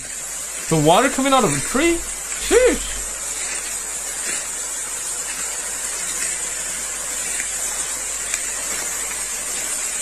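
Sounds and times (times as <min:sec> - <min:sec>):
water spraying from tree trunk: 0:00.0 - 0:10.0.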